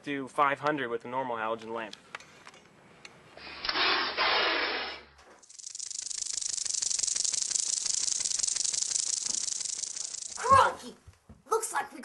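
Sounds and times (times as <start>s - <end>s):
loud hissing: 3.7s - 10.5s
rattlesnake rattle buzzing: 5.4s - 10.7s.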